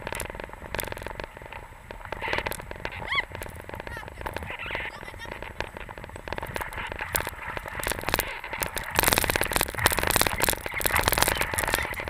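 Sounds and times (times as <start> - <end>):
skis scraping over snow: 0.0 - 12.0.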